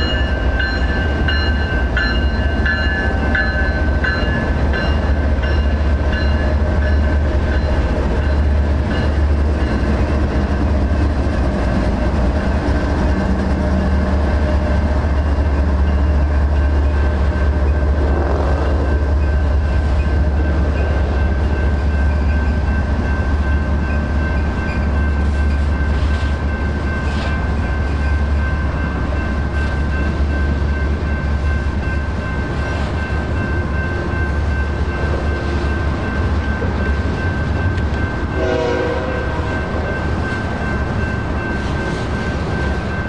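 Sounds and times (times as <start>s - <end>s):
crossing bell ringing: 0.0s - 10.6s, 12.7s - 43.0s
freight train rumbling: 0.0s - 43.0s
train horn blast: 38.4s - 39.6s.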